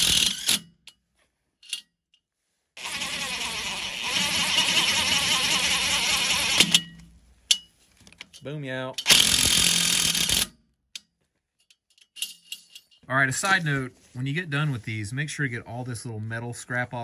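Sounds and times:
impact driver hammering: 2.8s - 7.0s.

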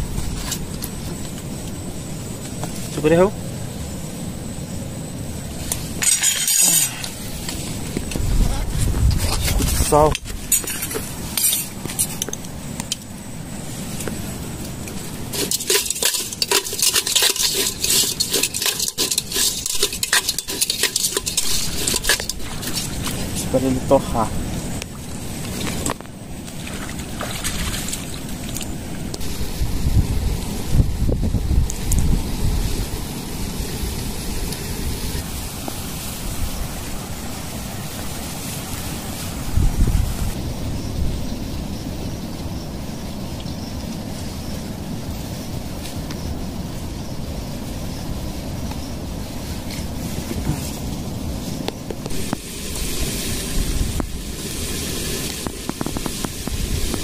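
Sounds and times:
steady hiss: 0.0s - 57.0s
wind rumbling on microphone: 0.0s - 57.0s
utensil scraping a metal pot: 5.7s - 7.2s, 15.3s - 23.5s
shrimp sizzling in a pot: 13.8s - 24.1s, 52.0s - 57.0s.

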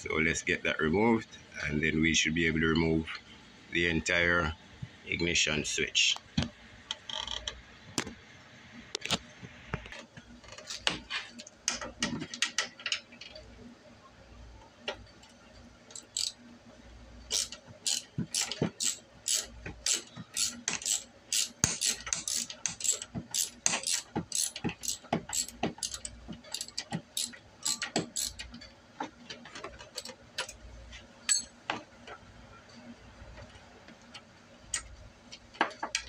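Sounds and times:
socket ratchet clicking: 16.0s - 16.4s, 17.3s - 28.5s.

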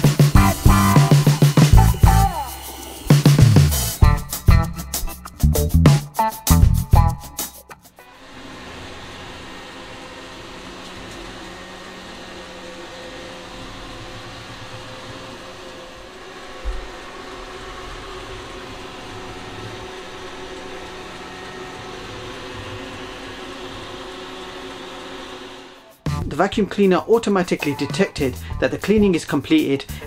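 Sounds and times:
robot vacuum cleaner running: 0.0s - 4.0s, 8.0s - 25.9s.

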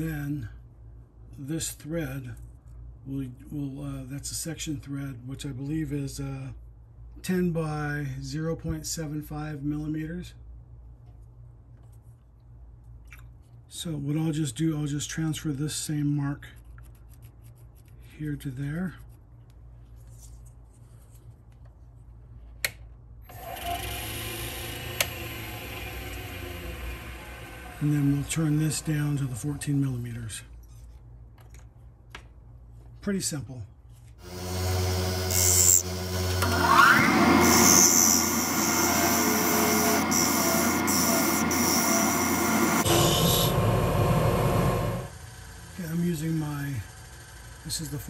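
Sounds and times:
lathe motor running: 23.3s - 29.4s, 34.2s - 48.0s.

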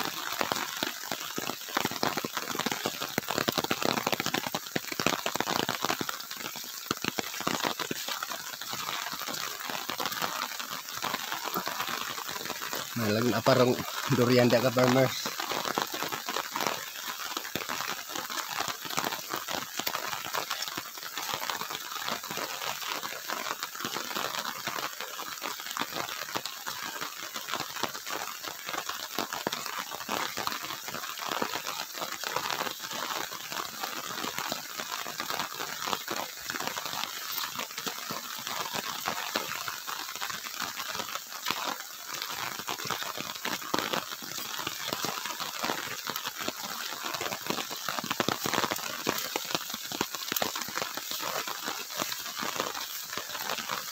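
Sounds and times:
footsteps on muddy dirt track: 42.5s - 53.9s.

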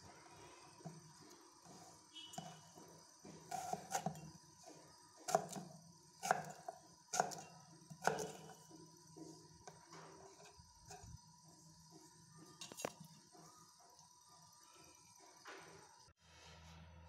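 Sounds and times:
knife chopping fruit on board: 3.3s - 8.6s.

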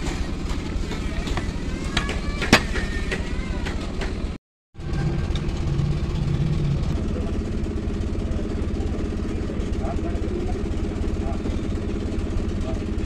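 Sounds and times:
throbbing low engine drone: 4.8s - 13.0s.

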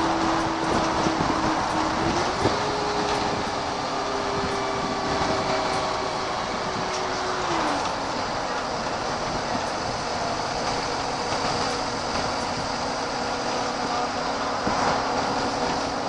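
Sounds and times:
bus engine and road noise: 0.0s - 16.0s.

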